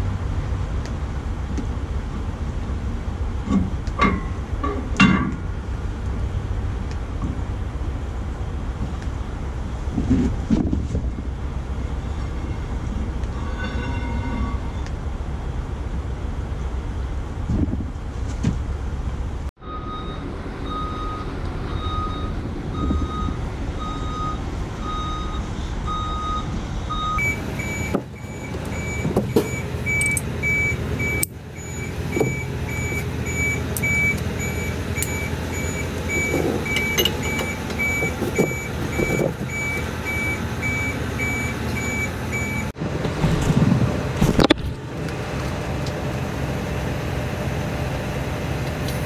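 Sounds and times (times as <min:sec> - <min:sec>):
vehicle back-up alarm beeping: 0:19.6 - 0:42.8.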